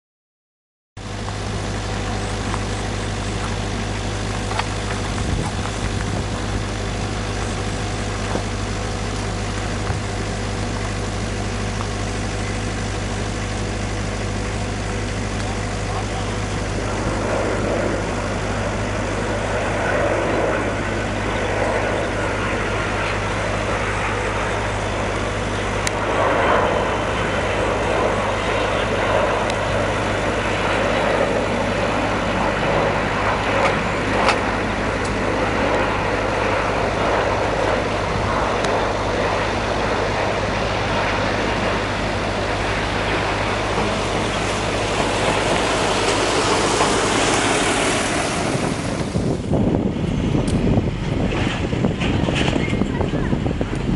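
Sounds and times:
constant low hum: 0:01.0 - 0:53.9
engine rumble: 0:01.0 - 0:53.9
broad even roar: 0:01.4 - 0:53.9.

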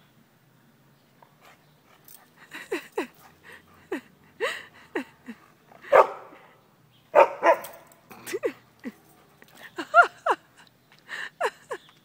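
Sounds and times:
dog barking: 0:05.8 - 0:06.5, 0:07.1 - 0:08.0.

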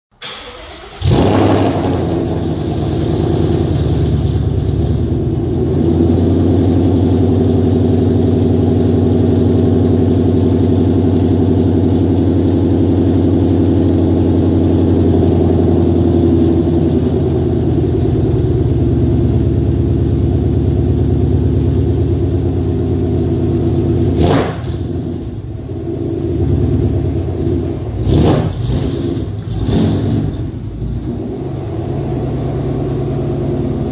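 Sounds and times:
engine revving burst: 0:00.2 - 0:04.1, 0:24.2 - 0:25.0, 0:28.0 - 0:31.8
car engine idling loudly: 0:01.0 - 0:33.9.

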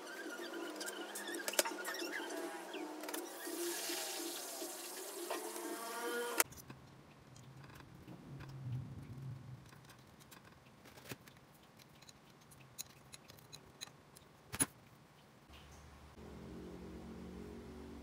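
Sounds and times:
small metal clicks and taps: 0:09.6 - 0:15.8.

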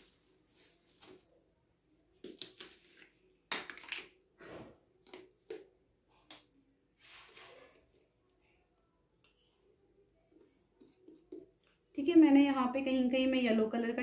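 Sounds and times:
painting tools scraping: 0:07.0 - 0:08.2.

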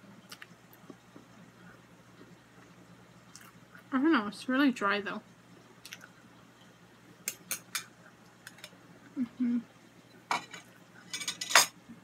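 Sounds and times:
low hum of voice: 0:09.1 - 0:09.7.

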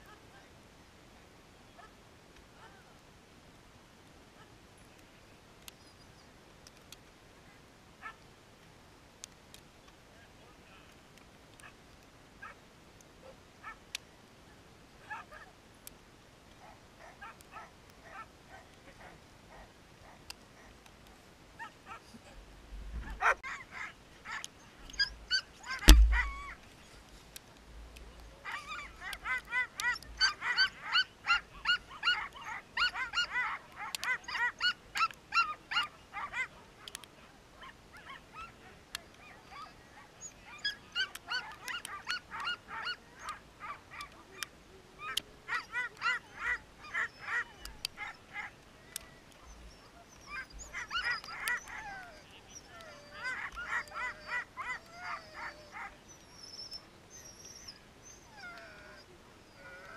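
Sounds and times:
dogs barking and yelping: 0:13.2 - 0:13.9, 0:15.0 - 0:15.5, 0:16.5 - 0:20.8, 0:23.0 - 0:27.1, 0:28.2 - 0:59.9
sharp thud: 0:25.9 - 0:26.4.

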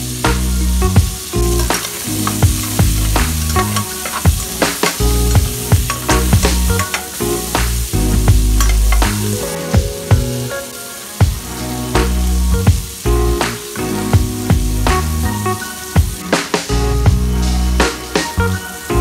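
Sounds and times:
background music with a beat: 0:00.0 - 0:19.0
food sizzling in a frying pan: 0:00.0 - 0:19.0
spatula stirring in a pan: 0:01.2 - 0:09.2.

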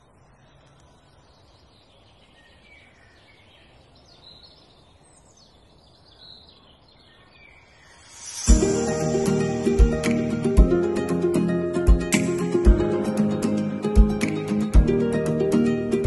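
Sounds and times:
small birds chirping: 0:00.0 - 0:10.6.

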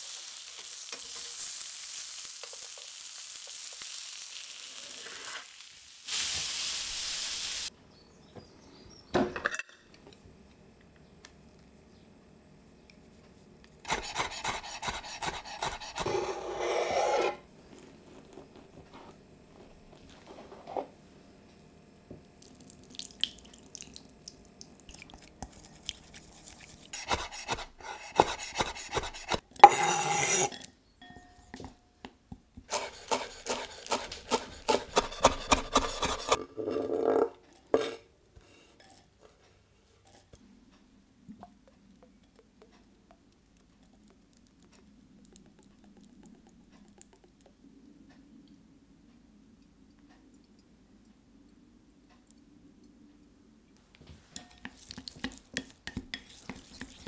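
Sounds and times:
chopsticks scraping glass bowl: 0:25.5 - 0:30.7, 0:32.7 - 0:36.4, 0:54.4 - 0:57.0.

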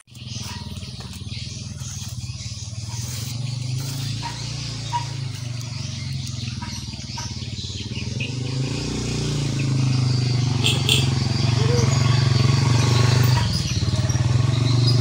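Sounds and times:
small engine running: 0:00.0 - 0:15.0
faint bird chirps: 0:00.1 - 0:15.0.

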